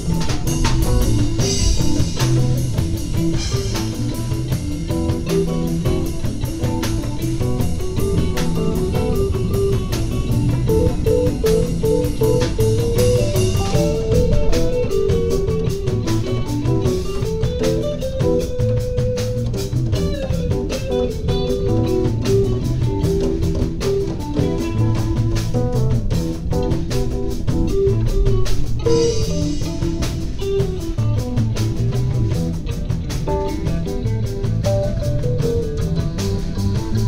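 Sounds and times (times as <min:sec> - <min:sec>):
guitar-led instrumental music: 0:00.0 - 0:37.0.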